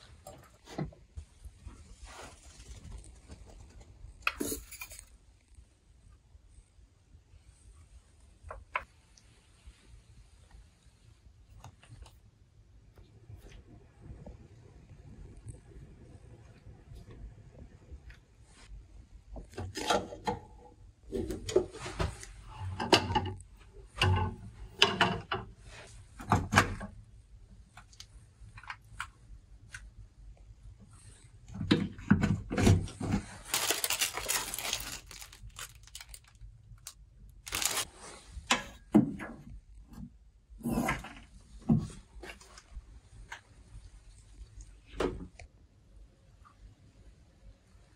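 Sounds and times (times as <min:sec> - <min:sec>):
rustling and crinkling: 0:00.0 - 0:05.6, 0:32.8 - 0:38.5.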